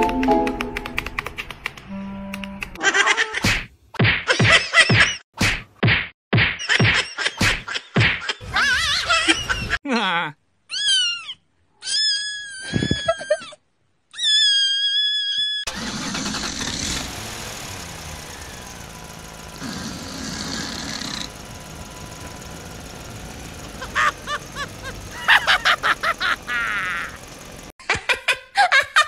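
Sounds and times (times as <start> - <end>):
car engine running: 15.7 - 27.7.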